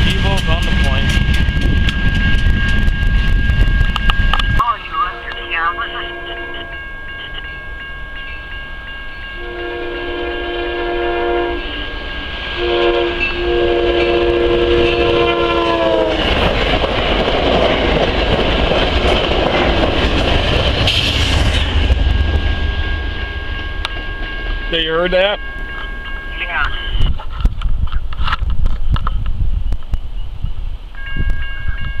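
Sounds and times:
train rumbling past: 0.0 - 32.0
train horn blasts: 1.6 - 7.6, 9.3 - 16.3.

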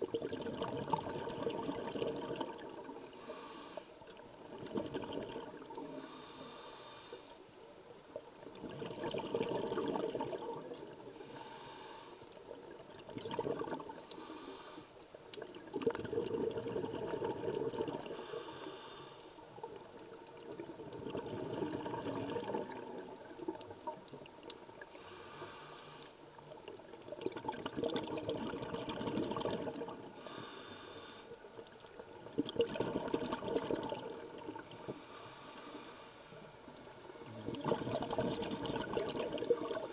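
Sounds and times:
exhaled bubbles rushing: 0.0 - 3.0, 4.4 - 5.8, 8.5 - 11.0, 12.6 - 14.0, 15.4 - 18.1, 20.4 - 24.0, 27.0 - 30.1, 32.2 - 34.7, 37.2 - 39.9
regulator inhale hiss: 2.8 - 4.2, 5.7 - 7.6, 10.9 - 12.5, 13.8 - 15.2, 18.0 - 19.7, 24.8 - 26.4, 30.0 - 32.0, 34.4 - 38.2.

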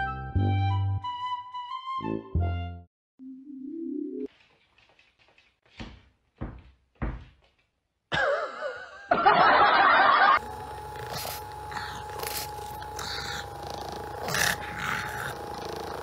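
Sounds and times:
massage gun buzzing: 10.4 - 16.0.

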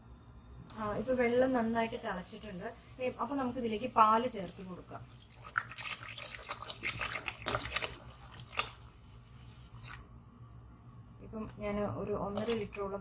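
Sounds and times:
milk pouring into boiling water: 4.1 - 10.2.

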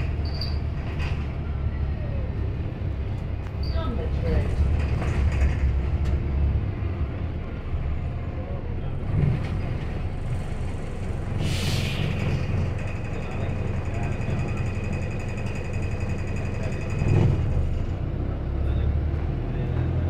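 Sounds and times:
bus engine and road rumble: 0.0 - 20.0
air brake hiss: 11.3 - 12.3.

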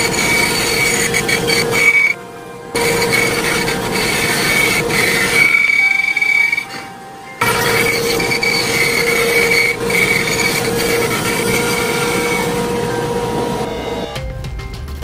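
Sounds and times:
bandsaw cutting wood: 0.0 - 13.8.

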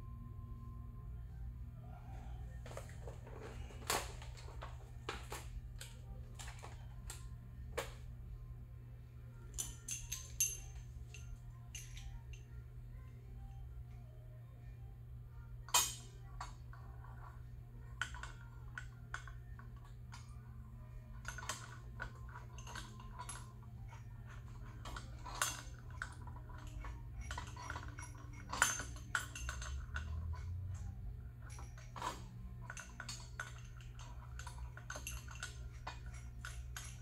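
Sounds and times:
metallic clicks and clinks: 9.4 - 12.6, 15.6 - 37.0.

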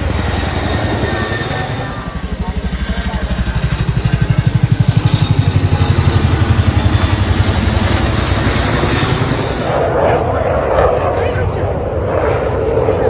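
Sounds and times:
helicopter rotor throbbing: 0.0 - 13.0.

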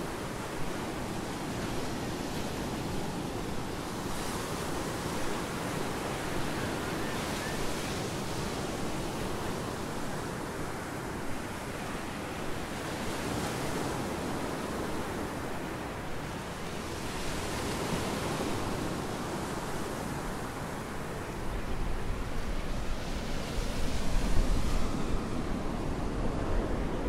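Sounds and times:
waves washing onto sandy beach: 0.0 - 27.0
wind on microphone: 16.7 - 27.0.

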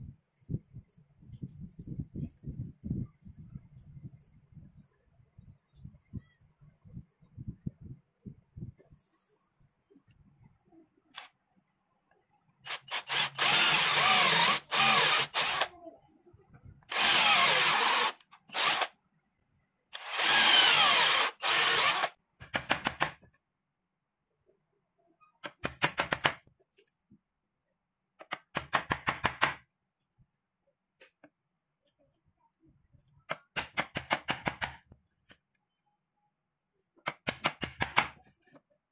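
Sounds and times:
electric drill boring into wood: 12.7 - 15.7, 16.9 - 18.9, 20.0 - 22.2.

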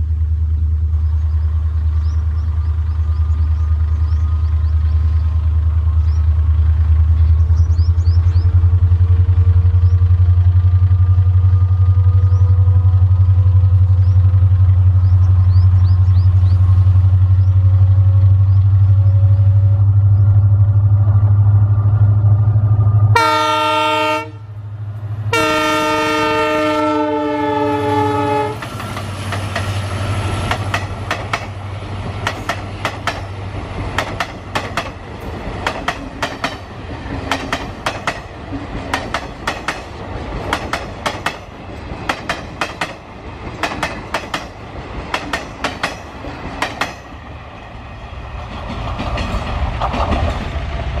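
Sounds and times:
diesel locomotive drone: 0.0 - 51.0
train horn blasts: 22.8 - 24.6, 25.2 - 28.8
train wheels clattering: 28.6 - 47.3, 48.2 - 51.0.

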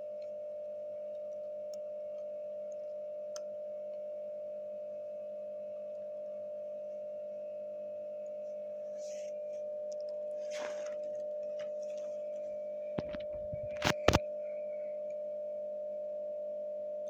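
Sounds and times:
steady hum: 0.0 - 17.0
soft paper rustle: 10.4 - 14.2.

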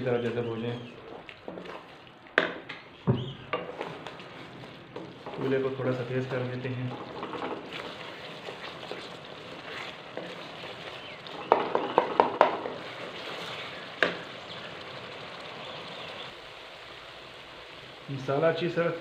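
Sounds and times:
masala sizzling in a pan: 0.0 - 19.0
spoon knocking against pan: 11.5 - 12.7.

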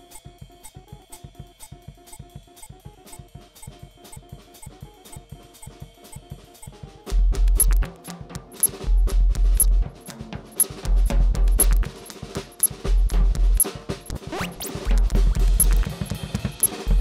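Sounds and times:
snare and hi-hat strokes: 7.2 - 17.0
backing track: 7.3 - 17.0
bass drum thumps: 12.8 - 13.6, 14.8 - 17.0.

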